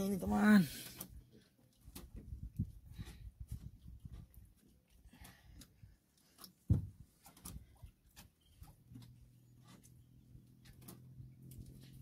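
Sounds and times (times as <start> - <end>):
thump: 6.7 - 6.9.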